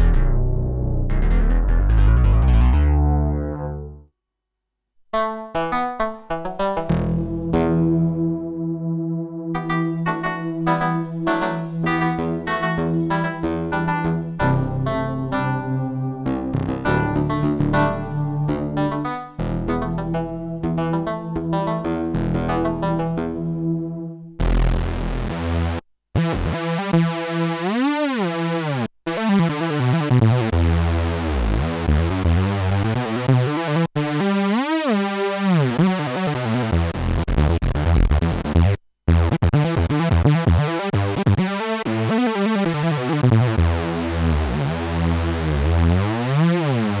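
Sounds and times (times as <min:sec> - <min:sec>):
synthesizer chords with swirling sweep: 0:01.0 - 0:04.0, 0:06.8 - 0:25.7.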